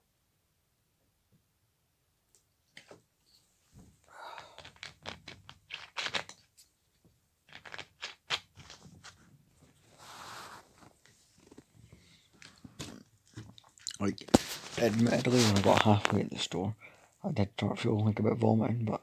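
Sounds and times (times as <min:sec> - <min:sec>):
crinkling and rustling: 0:03.6 - 0:16.6.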